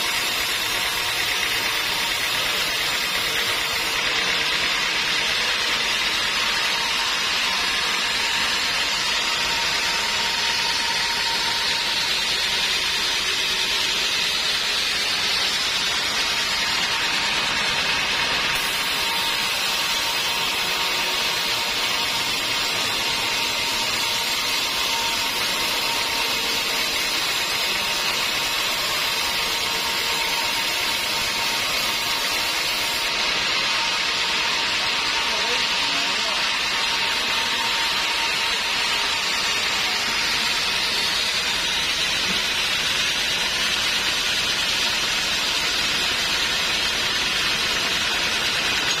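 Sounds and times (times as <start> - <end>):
band saw sawing log: 0.0 - 49.0
thin saw whine: 0.0 - 49.0.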